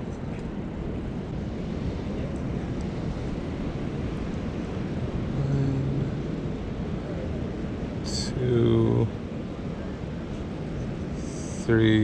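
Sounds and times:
ocean surf: 0.0 - 12.0
wind buffeting microphone: 0.0 - 12.0.

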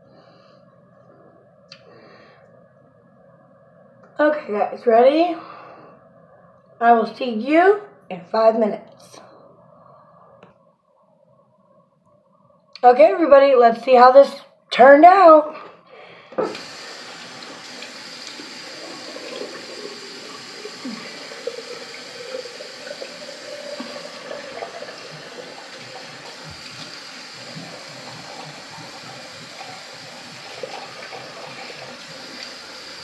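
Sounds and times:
tap running into sink: 16.4 - 32.6.

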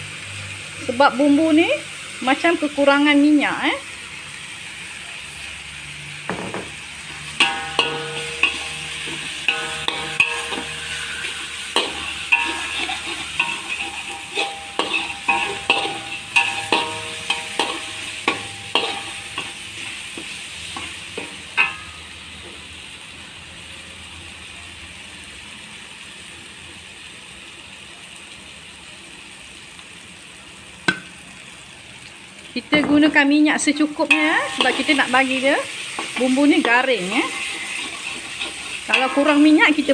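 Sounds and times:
frying sizzle: 0.0 - 39.9
metal spatula scraping a wok: 7.0 - 22.2, 34.1 - 39.9.

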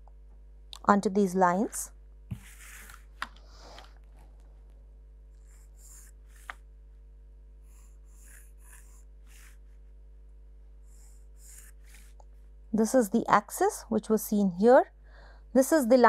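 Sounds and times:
faint steady hum: 0.0 - 16.0
pencil scratching on paper: 2.3 - 3.7, 5.4 - 6.6, 7.6 - 9.8, 10.8 - 12.2.

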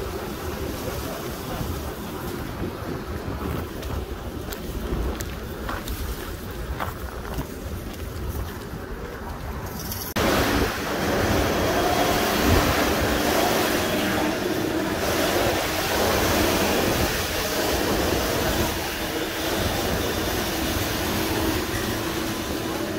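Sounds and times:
metro train rumble: 0.0 - 22.9.

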